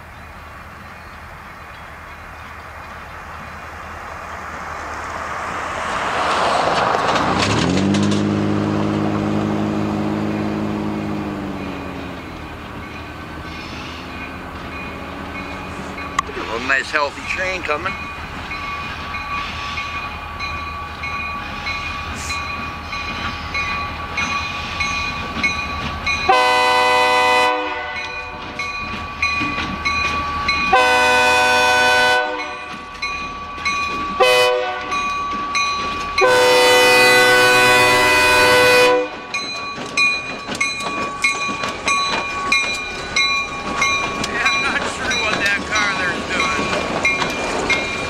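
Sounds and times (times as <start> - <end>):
locomotive horn blasts: 26.3 - 28.4, 30.7 - 32.7, 34.2 - 35.0, 36.1 - 39.3.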